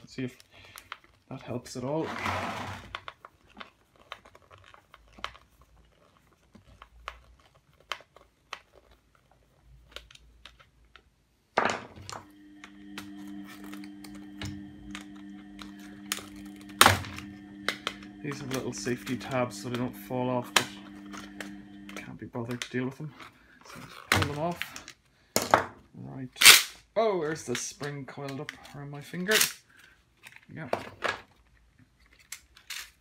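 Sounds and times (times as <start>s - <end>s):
plastic parts clicking and rattling: 2.9s - 11.2s, 27.3s - 33.0s
steady low hum: 12.1s - 22.5s.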